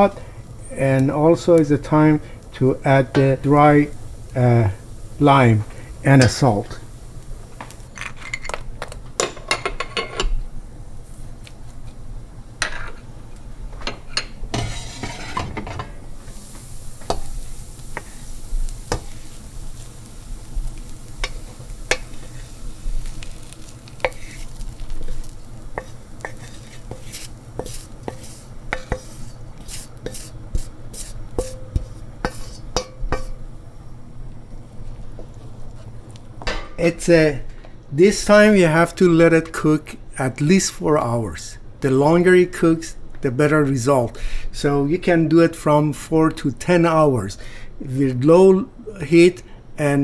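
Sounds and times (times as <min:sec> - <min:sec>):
spoon scraping and knocking pot: 0:14.2 - 0:15.9, 0:25.8 - 0:33.4.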